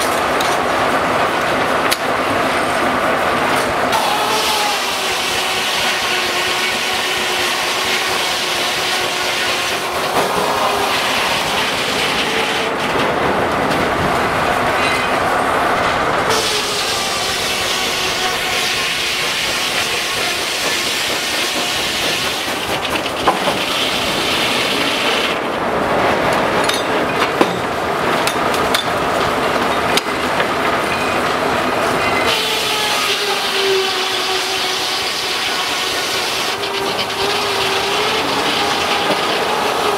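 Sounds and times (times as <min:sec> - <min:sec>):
sawmill machinery noise: 0:00.0 - 0:39.9
steam hiss: 0:03.9 - 0:12.8, 0:16.2 - 0:25.4, 0:32.2 - 0:39.9.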